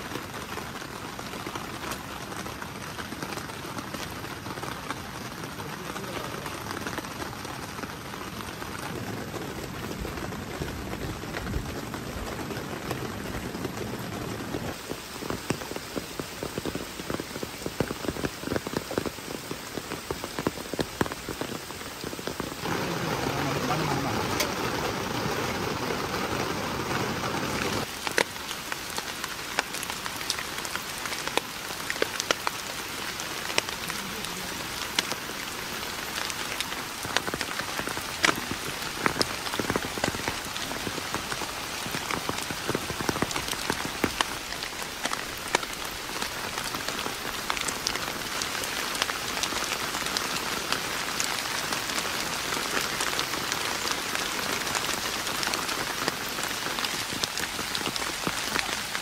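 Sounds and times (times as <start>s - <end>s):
heavy raindrops tapping: 0.0s - 59.0s
rain falling on a tent: 0.0s - 59.0s.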